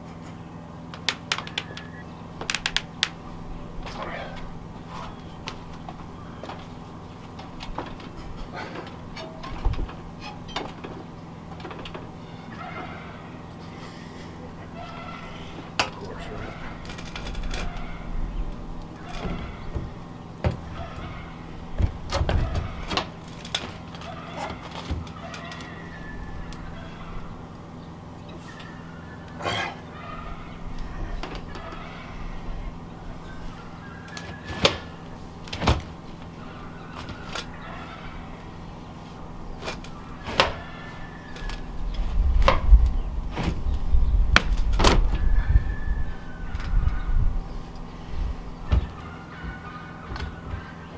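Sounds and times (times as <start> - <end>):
heavy low rumble: 0.0 - 23.9, 40.8 - 49.0
metal stovepipe clanking: 8.1 - 10.8.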